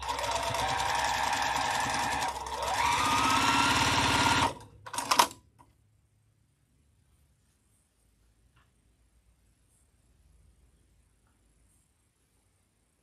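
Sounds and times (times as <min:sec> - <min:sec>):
sewing machine stitching: 0:00.0 - 0:05.4.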